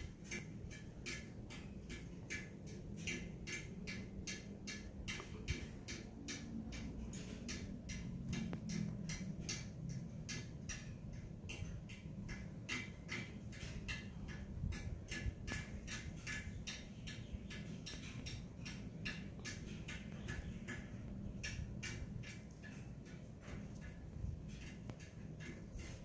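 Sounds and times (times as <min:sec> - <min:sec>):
fast ticking: 0:00.1 - 0:26.0.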